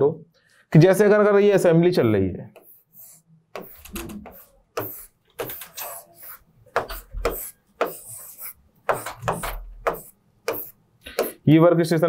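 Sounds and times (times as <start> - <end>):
pen scratching on writing board: 2.5 - 11.4.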